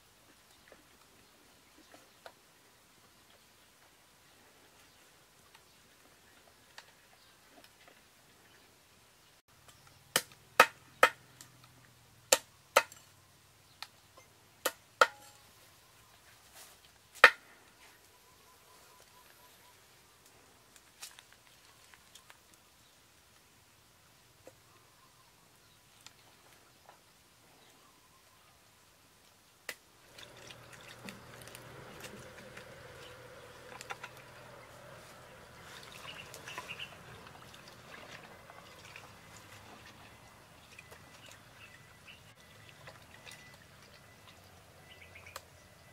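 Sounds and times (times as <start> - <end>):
faint bird chirps: 17.8 - 20.2, 24.5 - 26.9, 27.5 - 28.7, 38.3 - 45.9
water pouring into a metal wok: 30.1 - 32.4.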